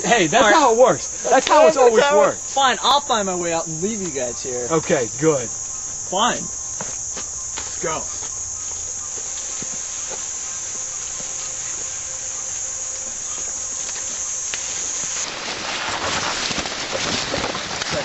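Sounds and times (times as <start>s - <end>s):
crickets trilling: 0.0s - 18.0s
rustling crackling noise: 6.6s - 18.0s.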